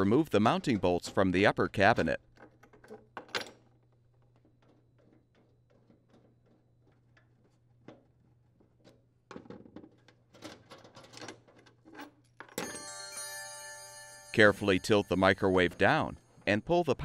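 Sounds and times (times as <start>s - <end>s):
bolt rattling: 2.2s - 8.2s
electronic chime tone: 12.6s - 16.6s.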